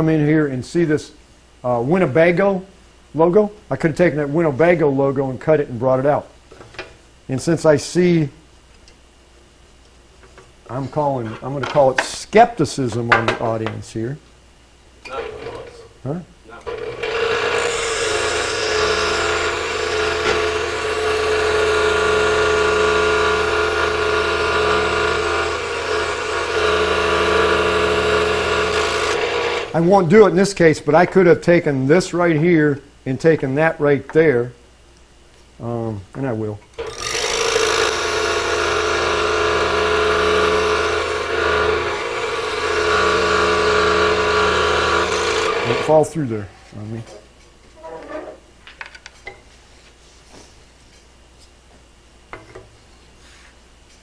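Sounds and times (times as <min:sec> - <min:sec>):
scroll saw cutting wood: 0:16.6 - 0:29.8, 0:36.8 - 0:46.0.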